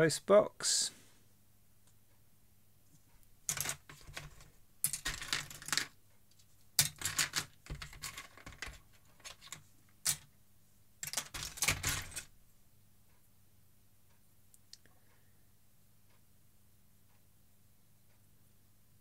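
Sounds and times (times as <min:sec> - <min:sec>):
plastic toy bricks clattering: 0:03.4 - 0:06.0, 0:06.8 - 0:10.3, 0:11.0 - 0:12.3.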